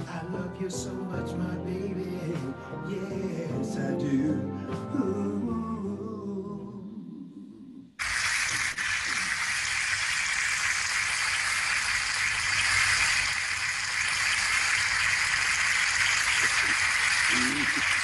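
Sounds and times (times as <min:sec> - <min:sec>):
backing music: 0:00.0 - 0:06.8
loud steady hiss: 0:08.0 - 0:18.0.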